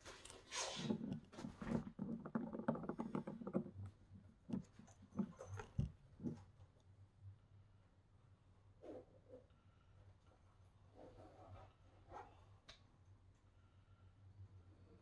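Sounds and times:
glass bottles clicking in plastic tray: 1.7s - 3.8s.

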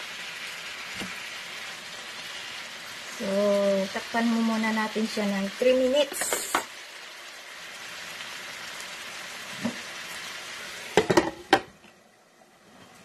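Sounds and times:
shrimp sizzling in butter: 0.0s - 11.8s
glass lid clanking on pan: 11.0s - 11.7s.

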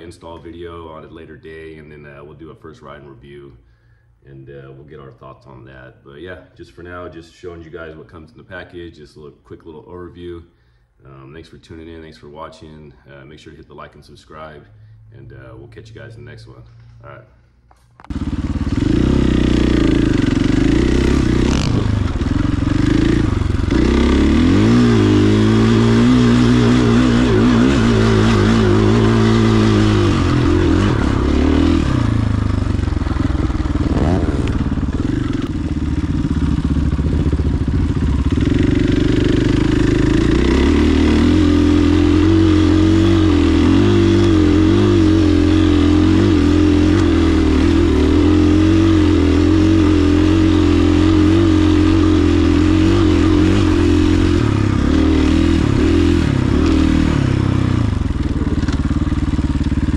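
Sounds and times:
motorcycle engine revving: 18.0s - 59.9s.

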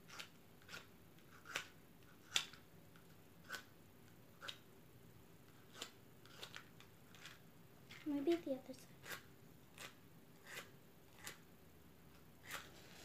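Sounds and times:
match scraping on matchbox: 9.0s - 11.4s, 12.4s - 13.0s.

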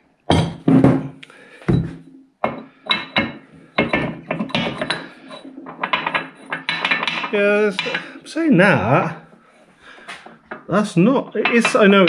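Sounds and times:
heavy thump: 0.3s - 2.1s
metallic knocks and clinks: 1.7s - 8.2s.

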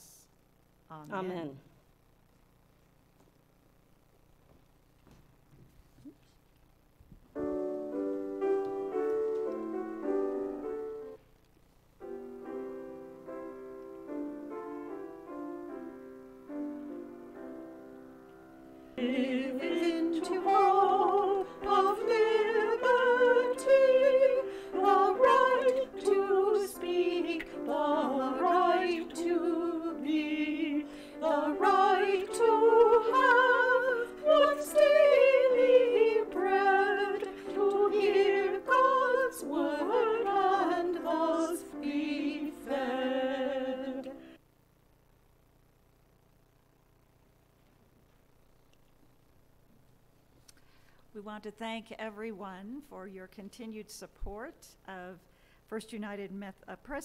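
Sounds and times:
piano playing: 7.4s - 11.2s, 12.0s - 44.3s.

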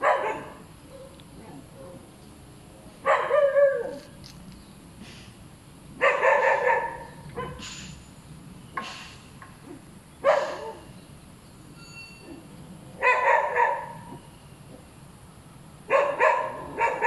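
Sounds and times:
dog barking: 0.0s - 2.1s, 3.0s - 4.0s, 6.0s - 7.6s, 10.2s - 10.9s, 13.0s - 14.1s, 15.9s - 17.0s.

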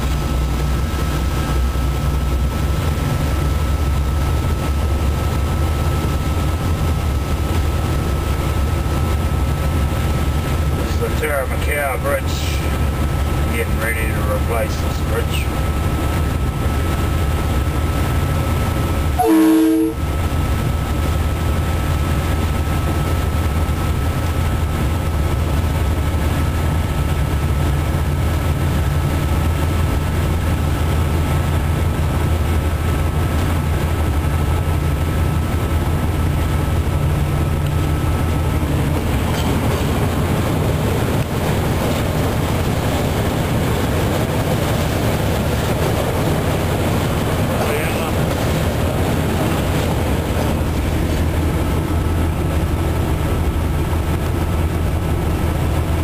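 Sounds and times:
diesel engine drone: 0.0s - 56.0s
wheel and rail noise: 0.0s - 56.0s
locomotive horn blast: 19.2s - 20.2s.

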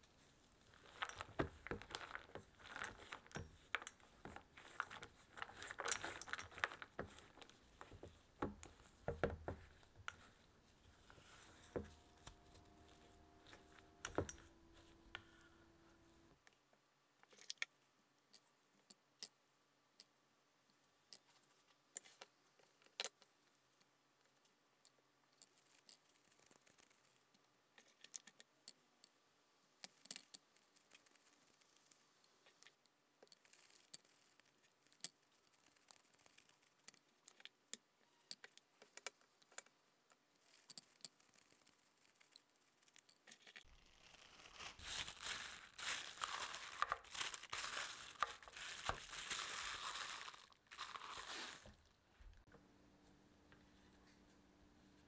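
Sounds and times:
parchment paper crinkling: 0.0s - 16.0s, 25.4s - 28.2s, 29.8s - 37.4s, 40.4s - 52.5s.

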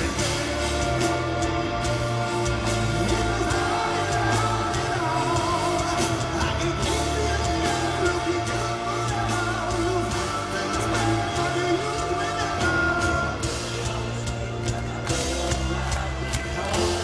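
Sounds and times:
distorted electric guitar: 0.0s - 17.0s
drum kit: 0.0s - 17.0s
man singing into microphone: 2.6s - 15.9s.

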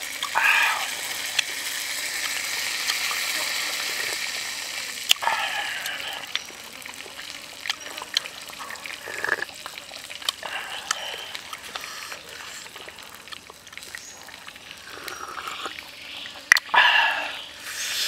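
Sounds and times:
wet sipping and slurping: 0.2s - 4.3s, 5.1s - 15.9s
soft mouth clicks: 10.2s - 12.7s.

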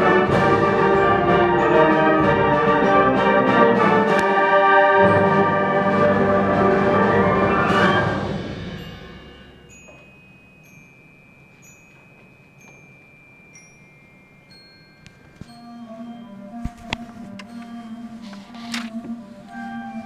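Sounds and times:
brass band chord: 0.0s - 9.7s
high-pitched chime-like pings: 8.7s - 16.6s
thin ringing tone: 9.1s - 16.6s.

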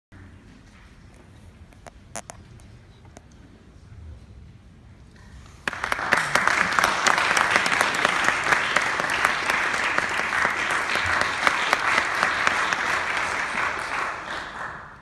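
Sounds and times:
audience applause: 5.6s - 15.0s.

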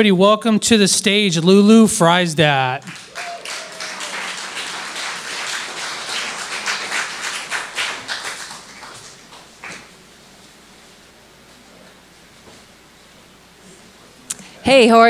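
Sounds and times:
audience applause: 2.8s - 10.0s.

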